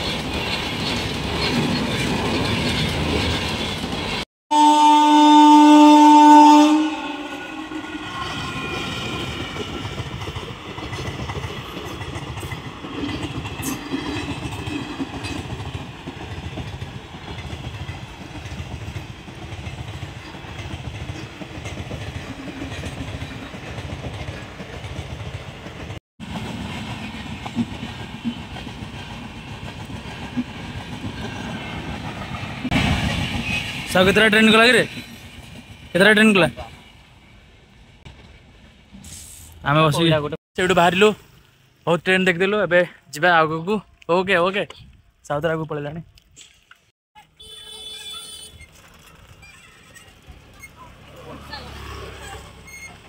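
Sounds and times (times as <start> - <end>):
loud train horn: 4.5 - 8.4, 47.4 - 48.6.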